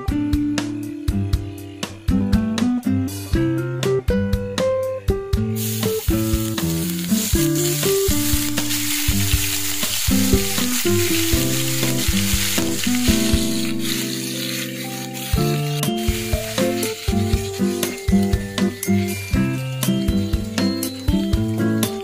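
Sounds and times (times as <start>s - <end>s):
plucked guitar music: 0.0s - 22.0s
garlic sizzling in hot oil: 5.5s - 22.0s
spatula stirring in pan: 5.8s - 21.5s.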